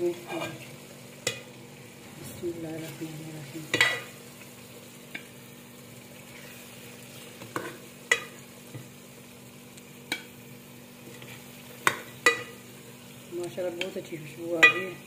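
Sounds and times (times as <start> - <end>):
oil sizzling: 0.0 - 15.0
metal spoon clinking on pot: 11.9 - 12.6, 14.6 - 15.0.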